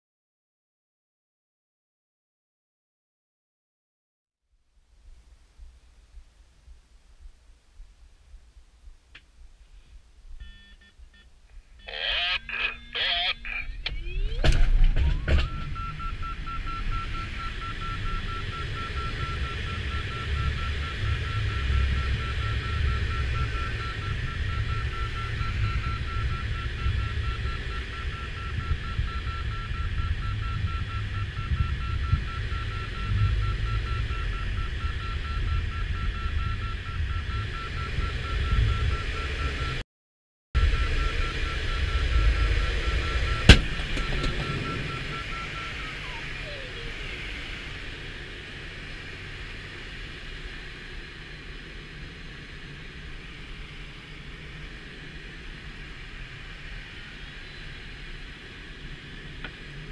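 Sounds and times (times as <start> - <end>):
pulsing electronic beep: 10.4 - 39.8, 40.6 - 47.8
tone sliding down in pitch: 11.8 - 19.4, 42.1 - 47.5.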